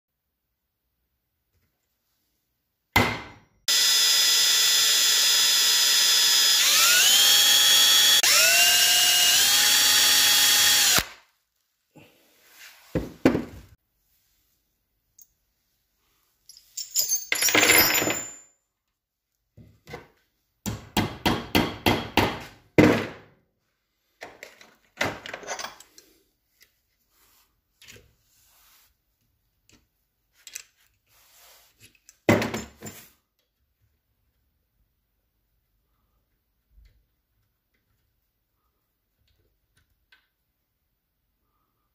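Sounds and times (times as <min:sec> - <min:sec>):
electric drill whining: 0:03.7 - 0:11.2.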